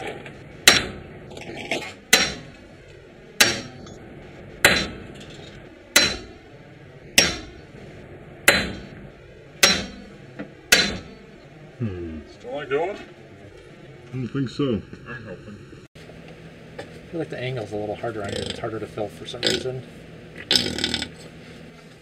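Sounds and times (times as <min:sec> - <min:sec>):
hammer striking metal shaft: 0:00.6 - 0:01.0, 0:01.7 - 0:02.6, 0:03.4 - 0:04.0, 0:04.6 - 0:06.4, 0:07.2 - 0:07.7, 0:08.4 - 0:09.0, 0:09.6 - 0:11.2.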